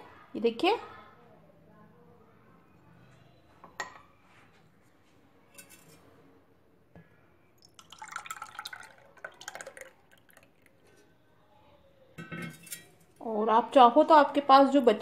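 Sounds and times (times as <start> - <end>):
milk pouring and splashing: 7.6 - 11.0.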